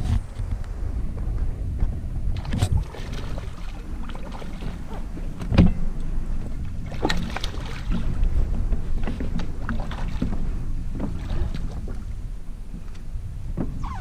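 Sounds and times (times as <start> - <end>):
water against boat hull: 0.0 - 14.0
fish splashing in water: 2.4 - 5.6, 6.6 - 12.2.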